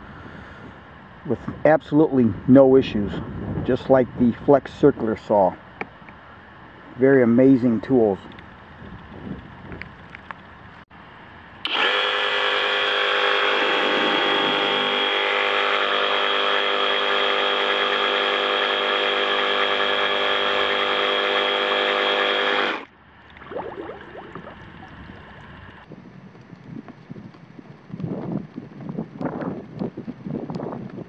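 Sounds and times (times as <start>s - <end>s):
wind noise: 0.0s - 10.8s, 23.1s - 31.0s
reciprocating saw motor whine: 11.6s - 22.9s
water splashing and sloshing: 22.8s - 25.9s.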